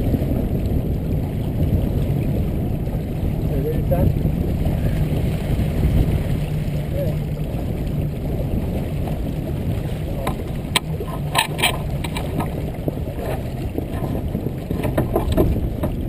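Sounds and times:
water noise: 0.0s - 16.0s
wind: 0.0s - 16.0s
sharp knocks or splashes: 9.7s - 16.0s.

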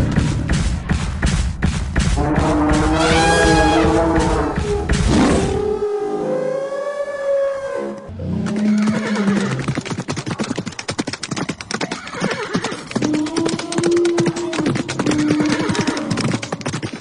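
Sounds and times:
galloping hooves clatter: 8.4s - 17.0s.

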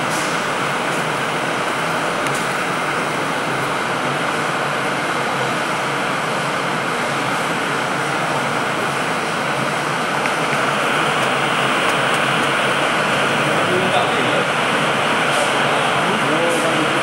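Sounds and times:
braiding machine running: 8.2s - 17.0s.

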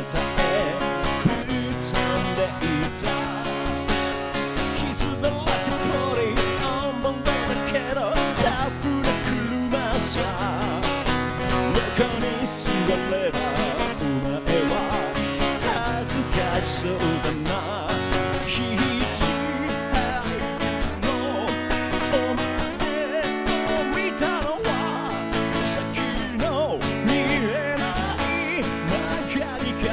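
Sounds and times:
guitar: 0.0s - 29.9s
man singing: 0.0s - 29.9s.

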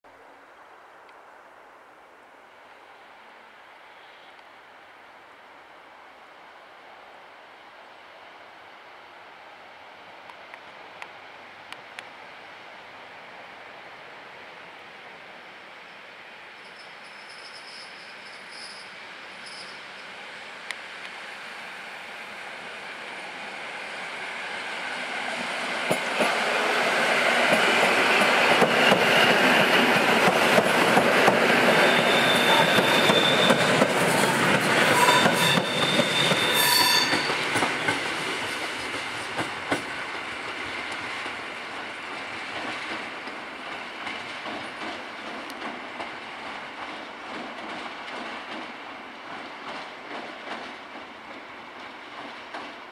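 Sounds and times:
electric train passing: 6.8s - 52.9s
high-pitched wheel squeal: 16.6s - 20.1s, 31.7s - 37.5s.

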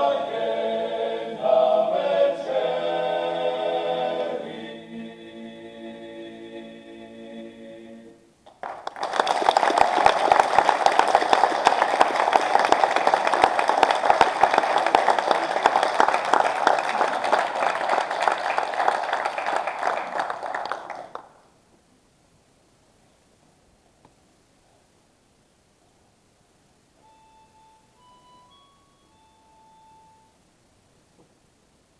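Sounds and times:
male choir singing a cappella: 0.0s - 8.2s
audience applause: 8.5s - 21.4s.

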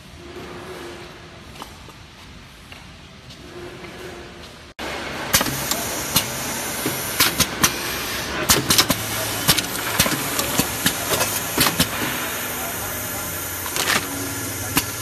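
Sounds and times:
packing machine hum: 4.8s - 15.0s
machine clicks and clacks: 5.3s - 12.4s, 13.5s - 15.0s.

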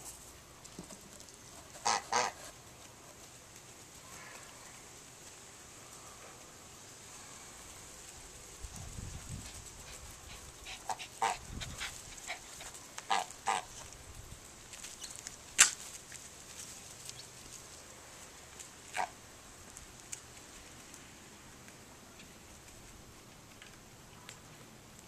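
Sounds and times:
goose honking: 1.8s - 2.5s, 10.9s - 11.4s, 13.1s - 13.7s, 18.9s - 19.2s.

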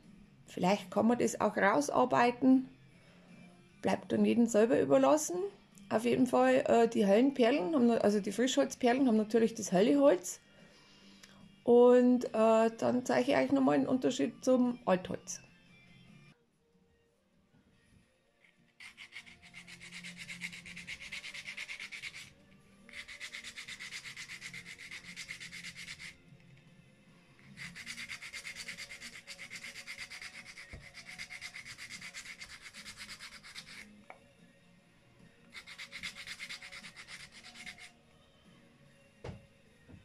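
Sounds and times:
sandpaper rubbing wood: 18.8s - 22.3s, 22.9s - 26.2s, 27.5s - 33.9s, 35.5s - 37.9s.

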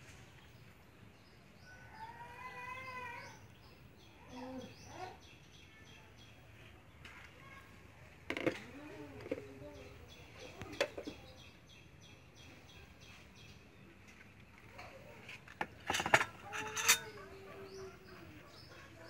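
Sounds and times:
dishes clinking on tabletop: 15.6s - 17.2s
hens clucking: 16.2s - 19.0s.

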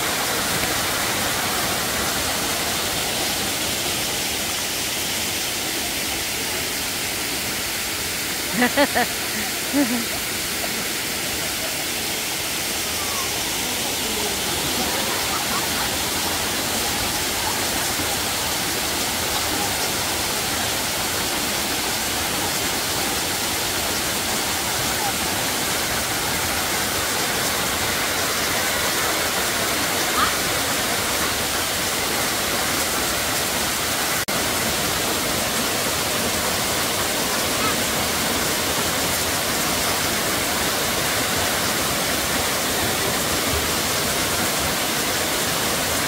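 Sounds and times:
waterfall rushing: 0.0s - 46.0s.

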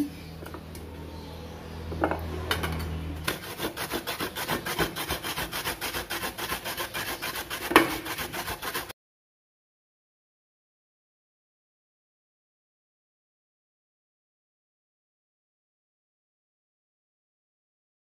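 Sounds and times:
ginger grated on metal grater: 3.2s - 8.9s.

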